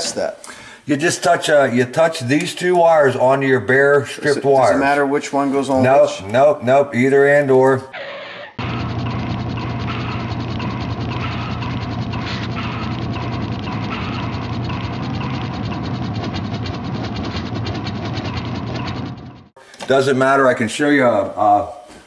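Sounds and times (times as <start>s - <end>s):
rapid mechanical clicking: 8.6s - 19.6s.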